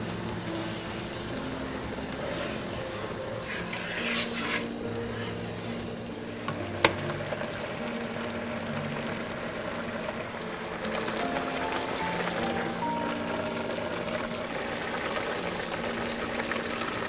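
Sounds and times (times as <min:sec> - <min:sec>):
spatula stirring: 0:00.0 - 0:08.4
sauce sizzling in frying pan: 0:00.0 - 0:17.0.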